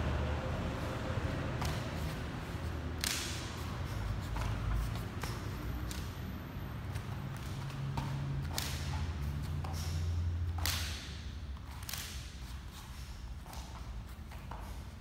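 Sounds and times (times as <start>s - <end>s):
fan swishing through air: 0.0s - 15.0s
soft thuds of footwork: 0.7s - 15.0s
fan snapping open and shut: 3.0s - 3.5s.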